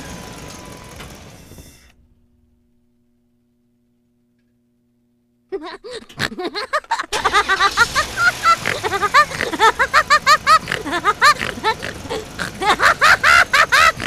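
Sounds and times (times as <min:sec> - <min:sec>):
high-pitched giggling: 0:05.5 - 0:14.0.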